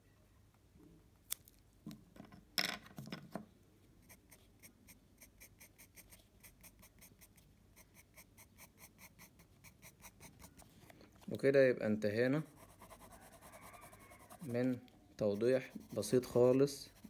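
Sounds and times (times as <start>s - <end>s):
pencil scratching on paper: 4.0s - 10.8s, 12.4s - 17.0s.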